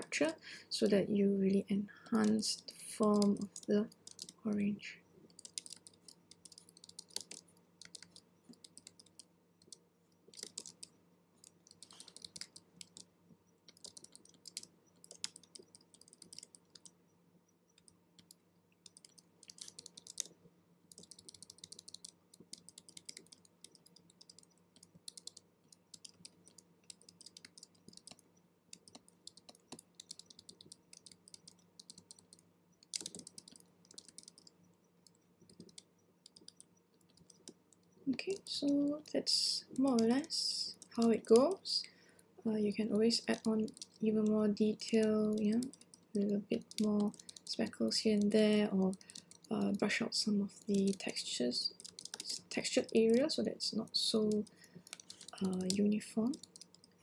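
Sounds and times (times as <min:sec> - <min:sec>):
keyboard key presses: 0:02.2 - 0:04.4, 0:05.3 - 0:13.1, 0:13.7 - 0:17.0, 0:17.7 - 0:38.9, 0:43.3 - 0:47.6, 0:51.7 - 0:53.2, 0:54.4 - 0:56.9.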